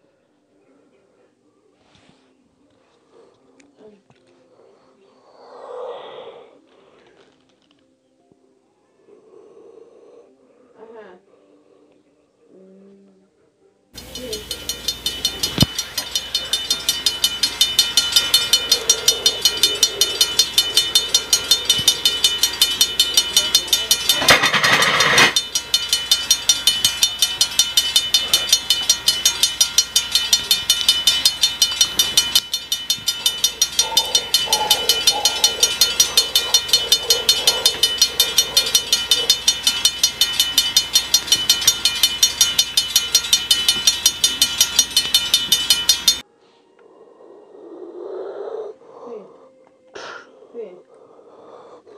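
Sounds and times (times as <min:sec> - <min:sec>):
electronic crossing bell dinging: 0:14.0 - 0:46.2.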